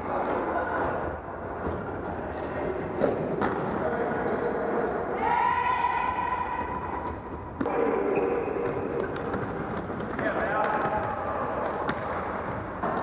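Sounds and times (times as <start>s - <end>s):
sneaker squeaks: 4.2s - 4.8s, 6.6s - 13.0s.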